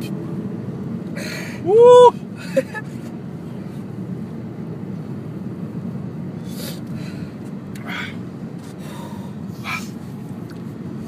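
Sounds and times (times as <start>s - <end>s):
car cabin rumble: 0.0s - 11.0s
person breathing sharply: 1.2s - 1.7s, 6.4s - 10.1s.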